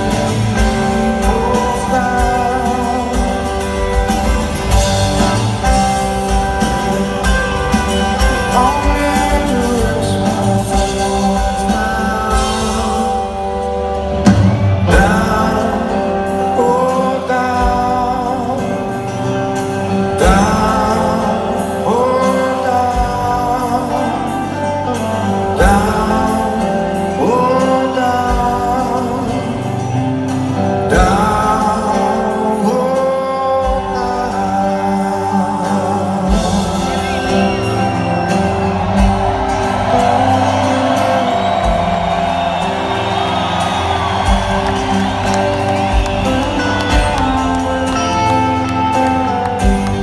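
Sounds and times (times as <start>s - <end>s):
man singing: 0.0s - 14.0s, 14.8s - 38.6s
live rock band: 0.0s - 50.0s.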